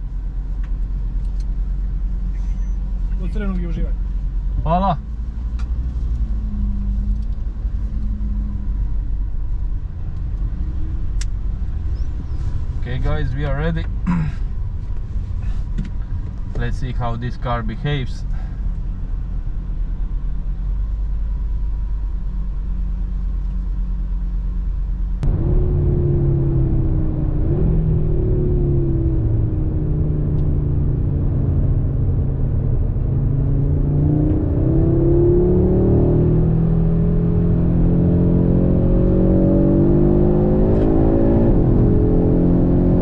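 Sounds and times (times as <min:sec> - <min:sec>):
car engine accelerating hard: 0:25.2 - 0:43.0.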